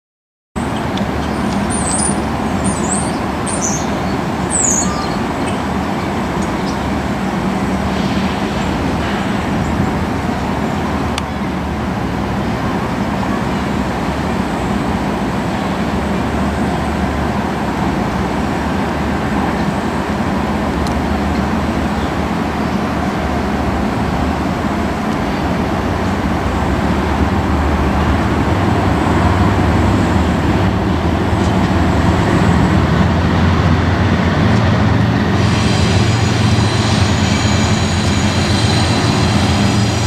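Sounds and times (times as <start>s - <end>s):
diesel locomotives rumbling: 0.6s - 40.0s
road traffic: 0.6s - 40.0s
bird chirps: 1.2s - 5.6s.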